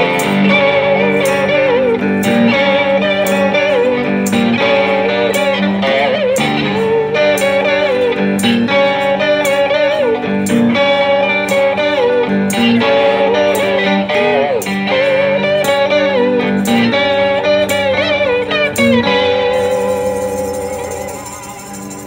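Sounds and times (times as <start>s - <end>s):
electric guitar blues riff: 0.0s - 22.0s
sharp percussive beat: 18.7s - 22.0s.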